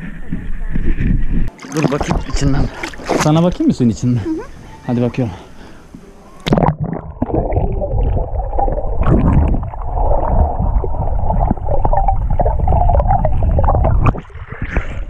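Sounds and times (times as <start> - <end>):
underwater rumbling and bubbling: 6.4 - 15.0.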